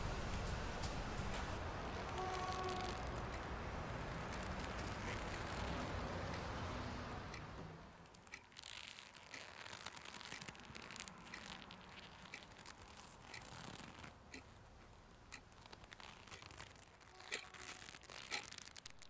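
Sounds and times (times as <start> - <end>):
laptop keyboard typing: 15.3 - 19.0.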